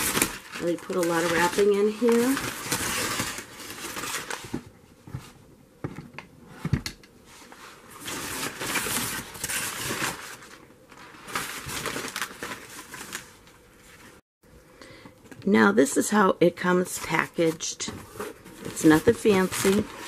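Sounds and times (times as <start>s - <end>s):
cardboard packaging crinkling: 0.0s - 4.7s, 7.9s - 14.2s, 17.1s - 20.0s.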